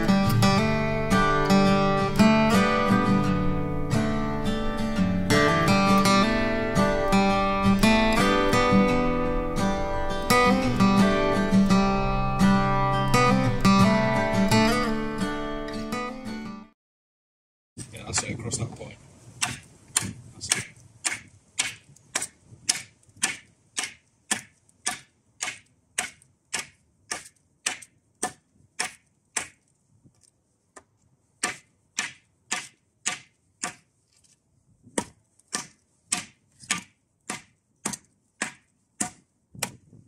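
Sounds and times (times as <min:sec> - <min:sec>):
machete chopping wood: 0:19.4 - 0:29.7, 0:30.8 - 0:34.3, 0:34.9 - 0:40.0.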